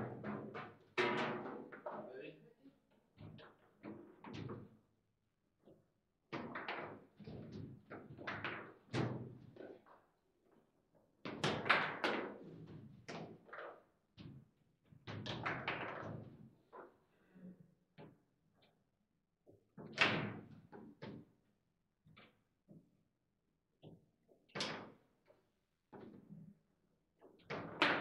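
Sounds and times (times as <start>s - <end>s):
table football knocks and clacks: 0.0s - 2.0s, 6.3s - 10.0s, 11.2s - 14.4s, 15.0s - 17.0s, 27.3s - 28.0s.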